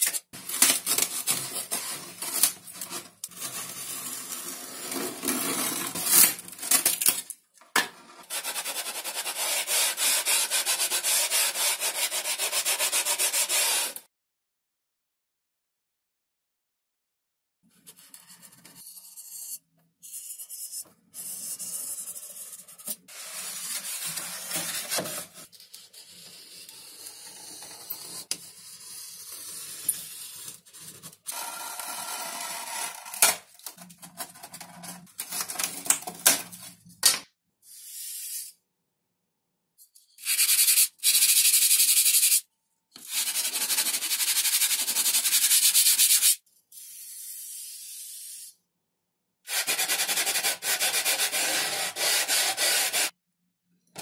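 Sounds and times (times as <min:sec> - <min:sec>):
sanding foam: 0:08.3 - 0:14.0, 0:40.2 - 0:42.4, 0:43.0 - 0:46.4, 0:49.5 - 0:53.2.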